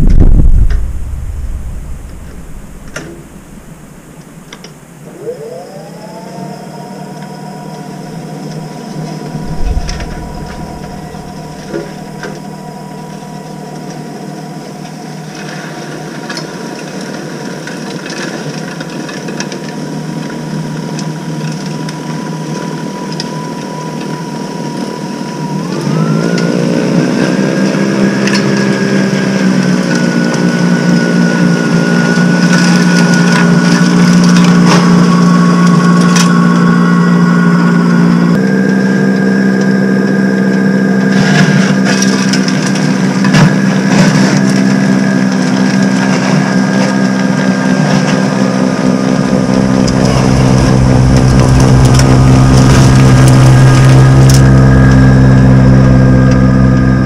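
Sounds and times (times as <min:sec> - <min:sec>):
low thump: 0:00.0 - 0:04.7, 0:09.2 - 0:13.3, 0:49.2 - 0:56.5
electric snow blower whine: 0:00.7 - 0:57.0.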